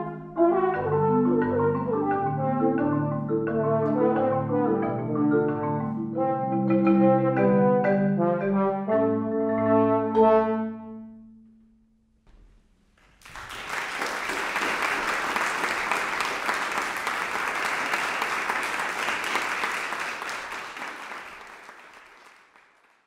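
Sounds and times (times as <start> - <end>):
audience applauding: 13.0 - 23.0.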